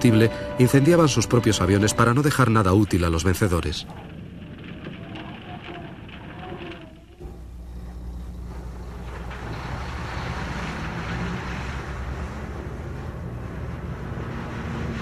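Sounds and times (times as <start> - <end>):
trucks driving past: 7.2 - 15.0
road hiss: 7.3 - 15.0.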